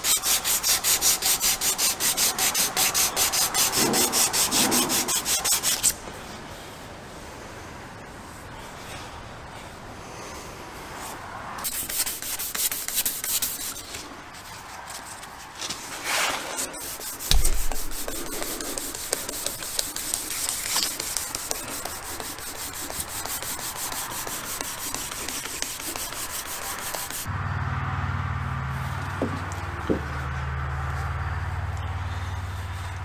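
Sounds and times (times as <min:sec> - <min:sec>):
abrasive strip sanding: 0:00.0 - 0:06.0, 0:11.6 - 0:15.2, 0:15.9 - 0:27.3
knock: 0:17.3 - 0:19.6.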